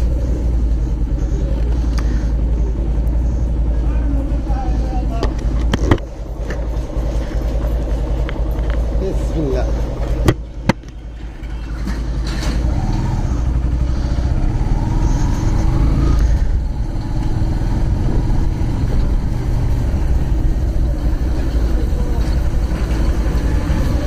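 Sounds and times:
motorcycle engine running: 0:00.0 - 0:24.0
wind rumble on microphone: 0:13.1 - 0:24.0.

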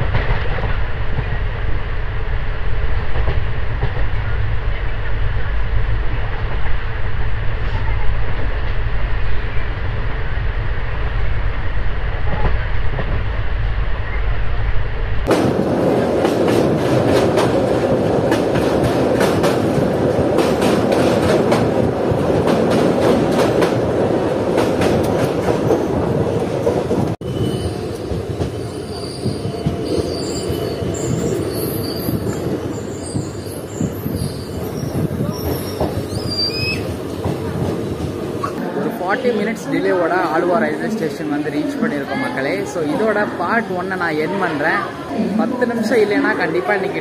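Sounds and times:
train wheels clattering: 0:15.3 - 0:38.6
train wheels squealing: 0:27.2 - 0:37.0
wind rumble on microphone: 0:31.0 - 0:38.2.

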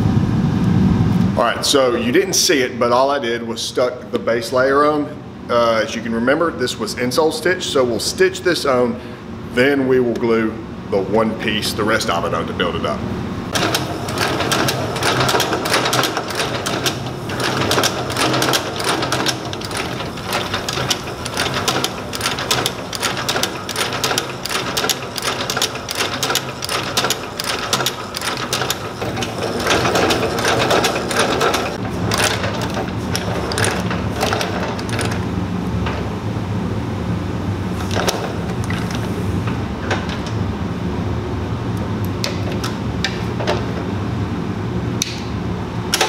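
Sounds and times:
motor hum: 0:13.0 - 0:44.8
stitching machine needle clatter: 0:13.5 - 0:35.3.

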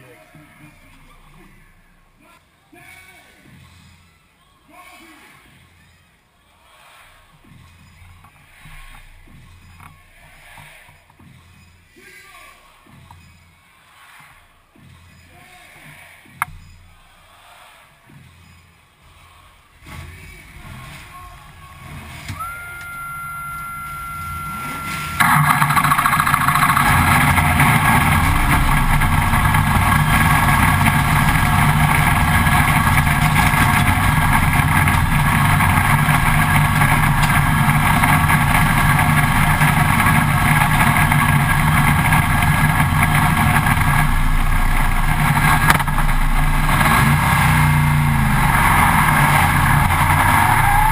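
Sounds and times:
race car engine running loud: 0:20.4 - 0:50.9
steady high whine: 0:22.3 - 0:50.9.

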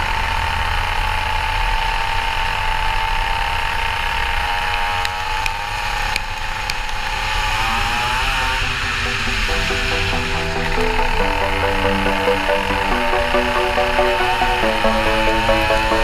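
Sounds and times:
go-kart engine high revs: 0:00.0 - 0:09.9.

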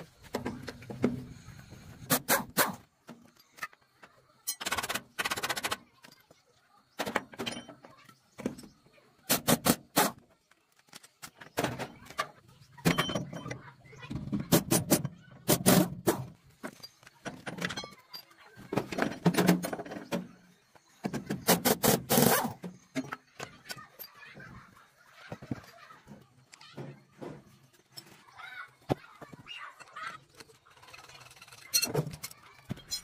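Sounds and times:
tools clattering on metal: 0:07.0 - 0:08.7, 0:11.1 - 0:14.5, 0:16.6 - 0:20.3.

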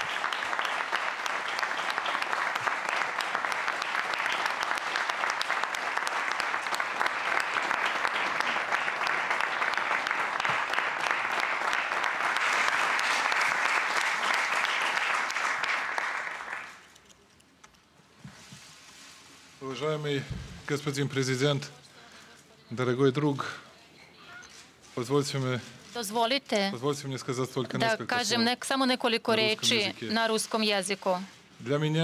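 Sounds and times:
audience applauding: 0:00.0 - 0:16.9.

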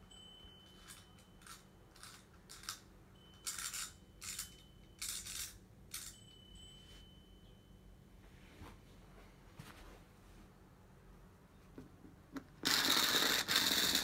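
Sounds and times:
light clinking rattles: 0:00.0 - 0:06.8.

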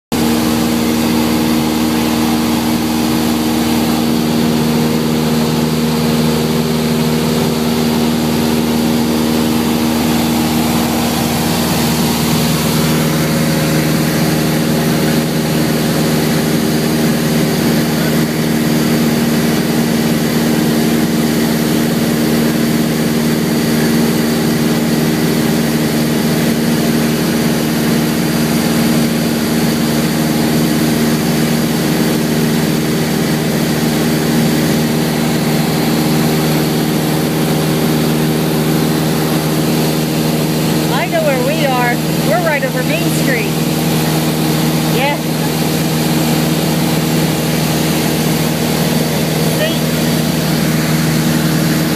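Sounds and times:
light aircraft engine drone: 0:00.2 - 0:51.9.

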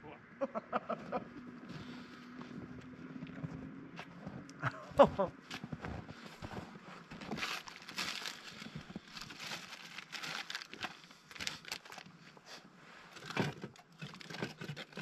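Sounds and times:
jacket rustling and crinkling: 0:05.4 - 0:15.0.

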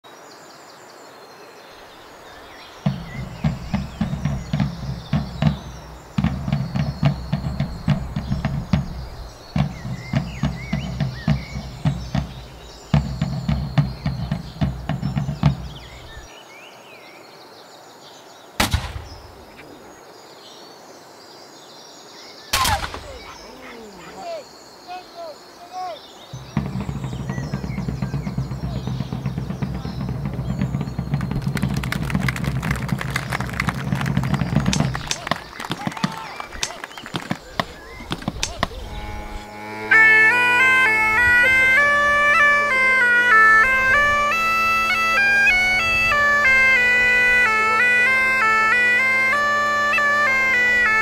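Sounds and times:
birds chirping: 0:00.0 - 0:51.0
rhythmic low thuds: 0:02.8 - 0:16.3, 0:18.6 - 0:19.6, 0:22.6 - 0:24.4, 0:26.4 - 0:51.0
musket shots: 0:18.6 - 0:19.6, 0:22.5 - 0:23.6.

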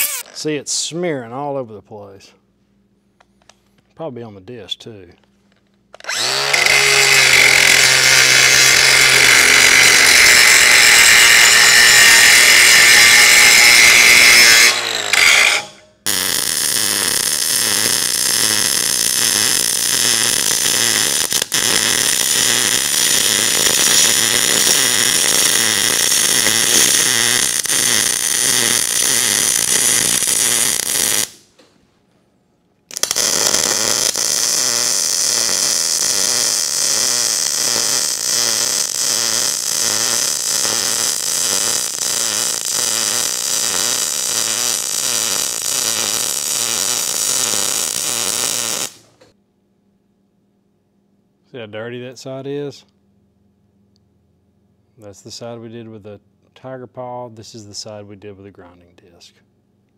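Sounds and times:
angle grinder grinding steel: 0:00.0 - 0:00.3, 0:06.0 - 0:31.4, 0:32.9 - 0:49.0
welding arc sizzling: 0:00.0 - 0:00.5, 0:06.0 - 0:31.5, 0:32.9 - 0:49.2.

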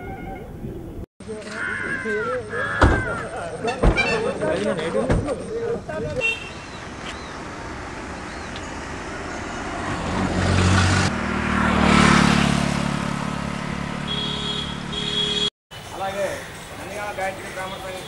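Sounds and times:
vehicle passing by: 0:07.4 - 0:15.1.

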